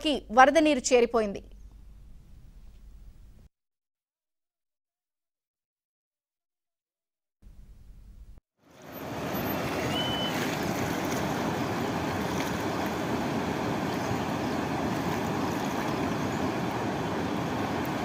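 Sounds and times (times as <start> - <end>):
floodwater rushing in stream: 8.7 - 18.0.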